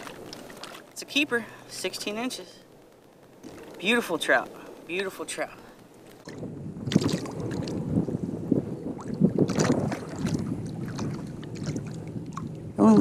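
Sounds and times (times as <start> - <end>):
water sloshing against kayak: 0.0 - 1.2, 6.1 - 8.1, 8.8 - 12.7.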